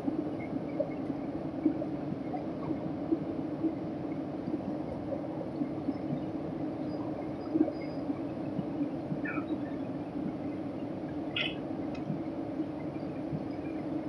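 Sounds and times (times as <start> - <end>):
airliner engine drone: 0.0 - 14.0.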